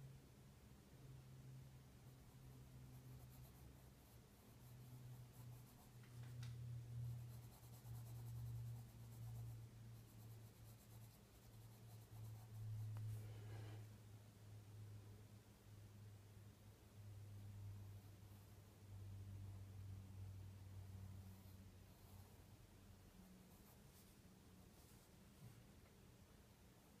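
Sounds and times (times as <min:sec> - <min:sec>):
steady low hum: 0:00.0 - 0:27.0
pencil scratching on paper: 0:02.1 - 0:06.3, 0:07.0 - 0:13.2, 0:23.4 - 0:25.1.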